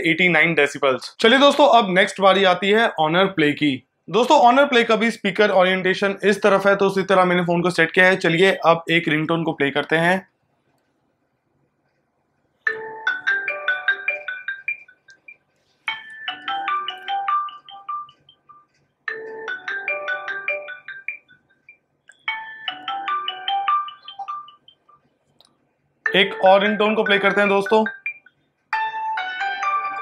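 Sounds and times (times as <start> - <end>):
phone ringtone melody: 12.7 - 25.0, 26.1 - 30.0.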